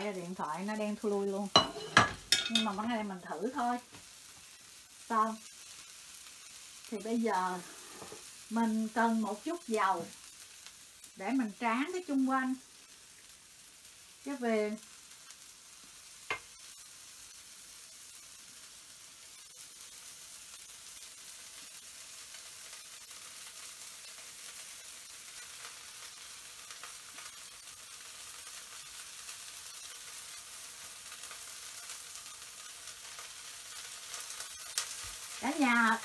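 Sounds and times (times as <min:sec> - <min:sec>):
batter sizzling in a pan: 0:00.0 - 0:36.0.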